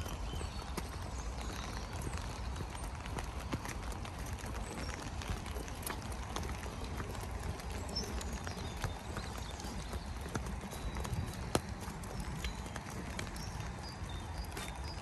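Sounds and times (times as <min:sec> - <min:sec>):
footsteps on wet ground: 0:00.0 - 0:15.0.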